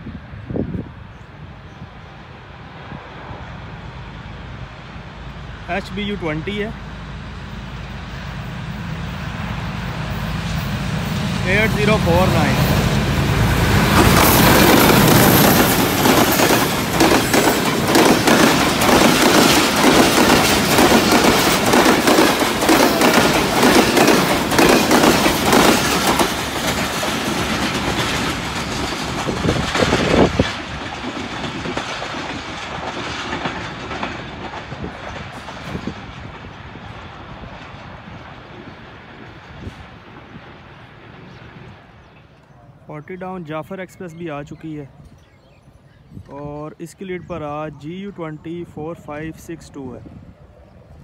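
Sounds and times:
diesel locomotive engine: 0.0s - 51.0s
train wheels clattering over rail joints: 12.5s - 38.4s.

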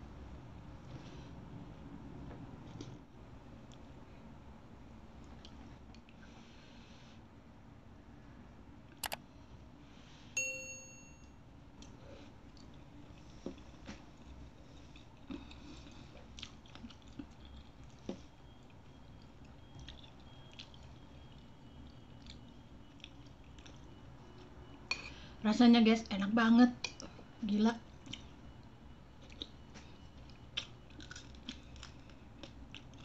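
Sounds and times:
cutlery ding on ceramic bowl: 10.4s - 11.3s
faint chewing clicks: 11.8s - 24.8s, 28.0s - 33.0s.

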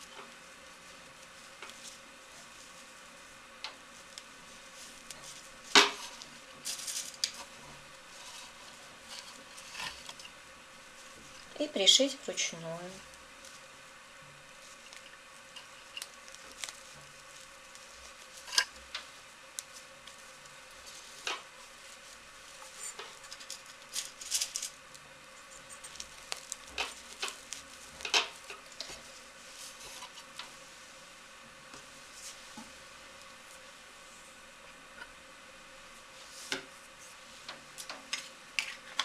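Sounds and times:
fabric rustling: 0.0s - 13.8s, 25.8s - 31.2s, 31.8s - 33.6s.

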